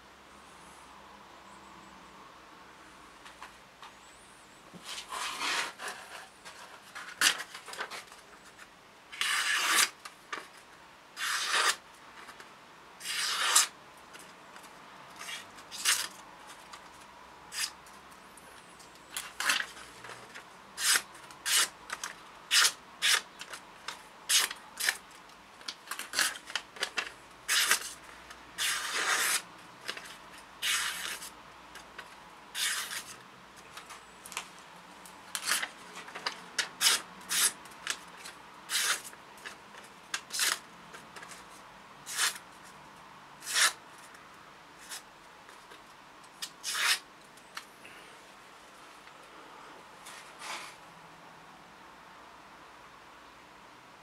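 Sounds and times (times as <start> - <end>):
knife slicing paper: 9.1 - 10.0, 11.2 - 11.8, 13.0 - 13.7, 20.8 - 21.8, 25.9 - 28.0, 28.6 - 30.0, 30.6 - 31.3, 32.6 - 33.2, 35.4 - 38.0, 38.7 - 39.1, 42.0 - 42.4, 43.4 - 43.8, 46.4 - 47.0.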